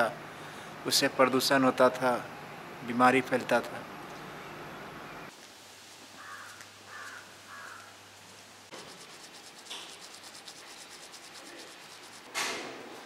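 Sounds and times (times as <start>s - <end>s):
toothbrush scrubbing teeth: 8.7s - 12.3s.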